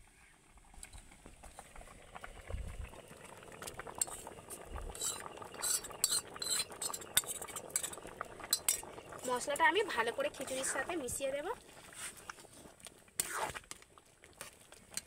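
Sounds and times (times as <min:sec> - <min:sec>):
pot bubbling and popping: 0:00.0 - 0:15.0.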